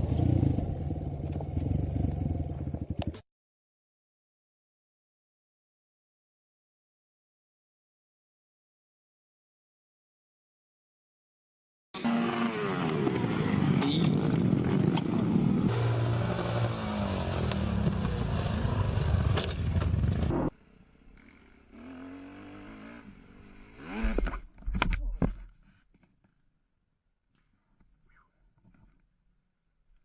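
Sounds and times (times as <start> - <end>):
motorcycle engines revving: 12.0 - 24.4.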